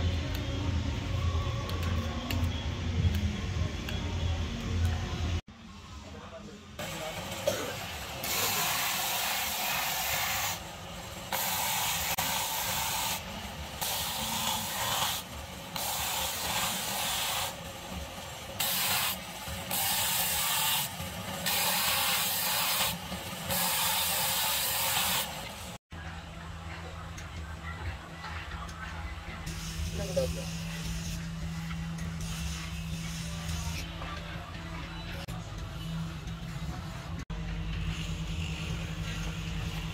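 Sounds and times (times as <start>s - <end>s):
wood rasping on sanding disc: 7.8s - 25.8s.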